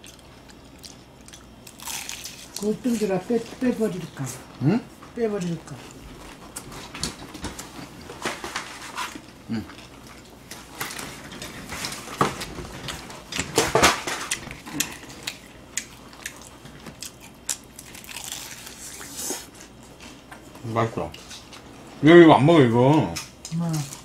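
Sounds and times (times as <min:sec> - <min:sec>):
crunching fried chicken: 0:00.0 - 0:03.1, 0:13.6 - 0:19.8.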